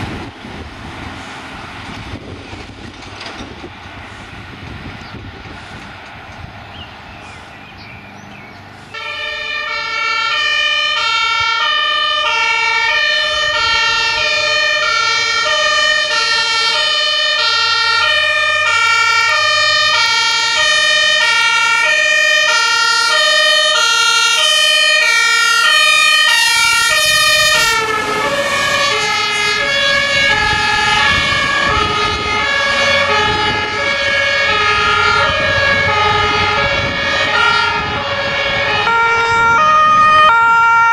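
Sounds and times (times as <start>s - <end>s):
truck engine and tyre noise: 0.0s - 40.9s
two-tone siren: 8.9s - 40.9s.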